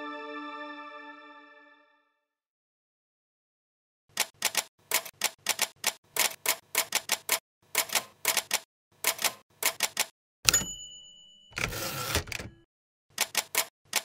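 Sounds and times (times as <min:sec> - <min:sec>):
typewriter keys striking: 0:04.2 - 0:10.7, 0:13.2 - 0:14.0
loud ringing typewriter strike: 0:10.5 - 0:12.6.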